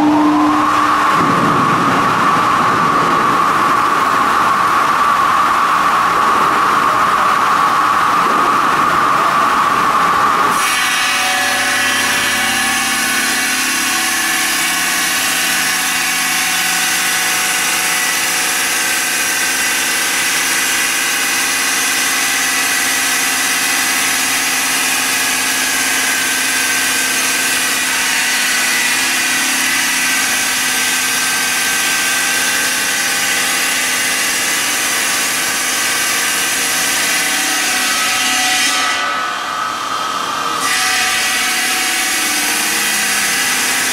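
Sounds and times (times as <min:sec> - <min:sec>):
saw blade cutting stone: 0:10.2 - 0:39.6, 0:40.2 - 0:43.9.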